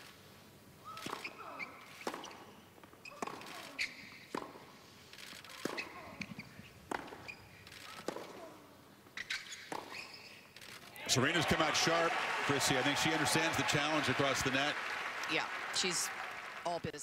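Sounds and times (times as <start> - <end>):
tennis racket hitting ball: 1.0 - 4.7, 5.5 - 8.6, 9.5 - 10.1.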